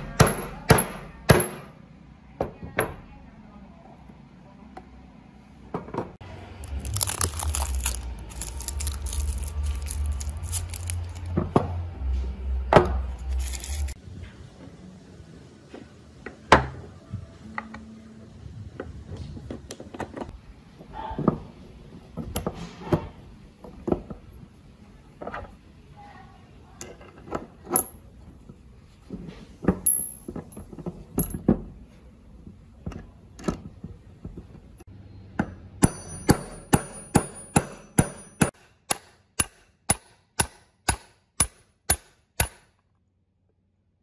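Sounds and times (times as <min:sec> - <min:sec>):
crackling and rustling: 0:06.6 - 0:11.4, 0:13.1 - 0:14.4.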